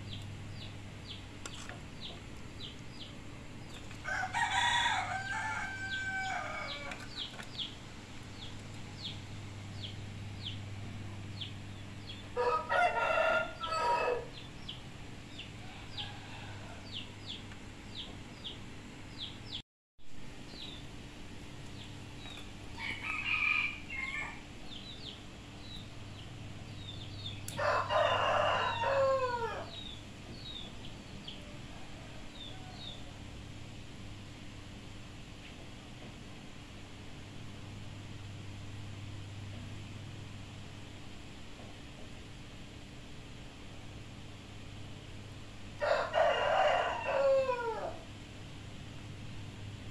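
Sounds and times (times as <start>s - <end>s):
rooster crowing: 4.0s - 7.2s, 12.1s - 14.4s, 15.3s - 17.0s, 22.8s - 24.5s, 27.6s - 29.8s, 31.4s - 33.2s, 45.8s - 48.1s.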